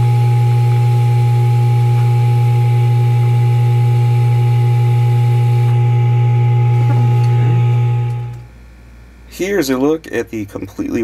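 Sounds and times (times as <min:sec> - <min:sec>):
loud low hum: 0:00.0 - 0:10.6
faint high steady tones: 0:00.1 - 0:08.5.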